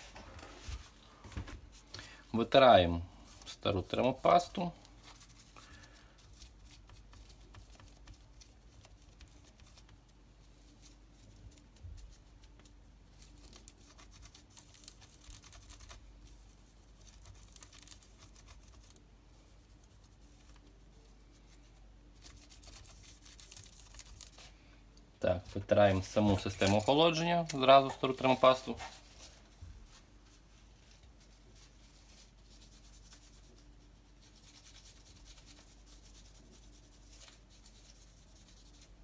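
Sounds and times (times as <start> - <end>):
cloth scratchy rubbing: 28.0 - 39.0.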